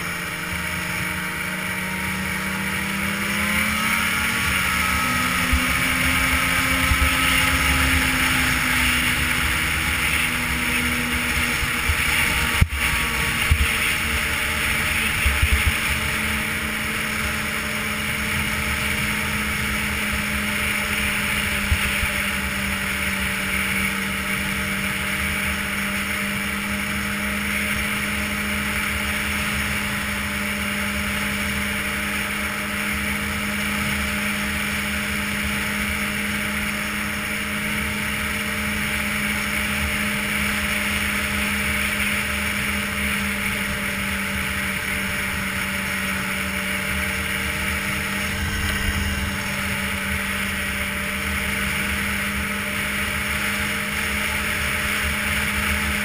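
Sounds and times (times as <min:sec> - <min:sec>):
snowmobile engine drone: 0:00.0 - 0:56.0
track and wind hiss: 0:00.0 - 0:56.0
low rumble: 0:46.8 - 0:52.0.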